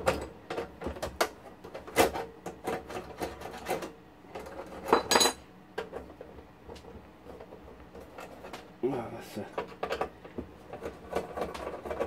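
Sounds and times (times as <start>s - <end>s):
metallic clicks and scrapes: 9.5s - 12.0s.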